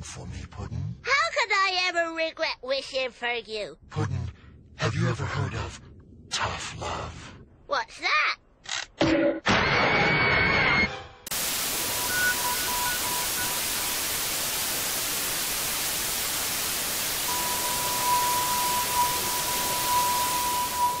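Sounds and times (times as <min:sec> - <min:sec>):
static hiss: 0:11.3 - 0:21.0
long high beep: 0:11.7 - 0:14.3, 0:17.2 - 0:21.0
short high beeps: 0:11.9 - 0:13.6, 0:17.3 - 0:21.0.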